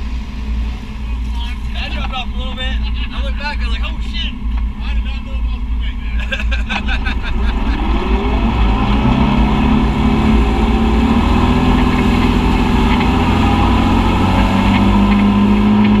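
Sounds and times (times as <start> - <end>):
utv engine running steadily: 0.0 - 16.0
tyre and muddy water noise: 7.8 - 16.0.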